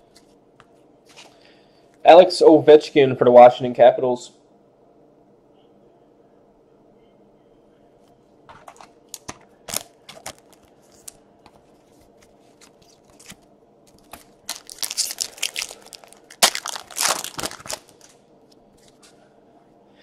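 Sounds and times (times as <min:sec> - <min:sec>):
wrapper crinkling: 0:08.6 - 0:18.2.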